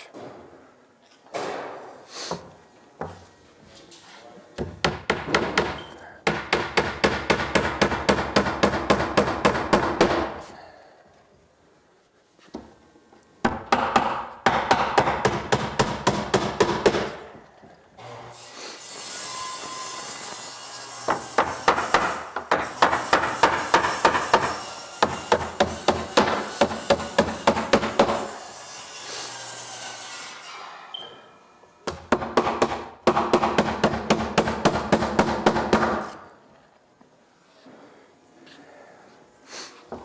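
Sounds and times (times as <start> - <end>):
hammer driving nails into wood: 4.6 - 10.4, 13.4 - 17.3, 21.1 - 28.3, 31.8 - 36.3.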